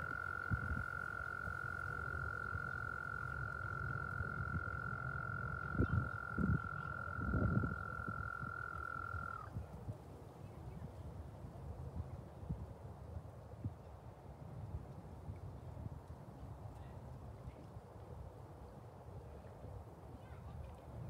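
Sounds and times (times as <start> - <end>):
frog trilling: 0.0 - 9.6.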